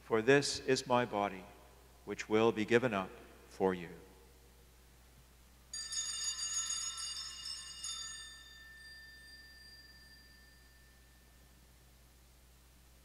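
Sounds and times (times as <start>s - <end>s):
small bells shaken: 5.7s - 11.7s.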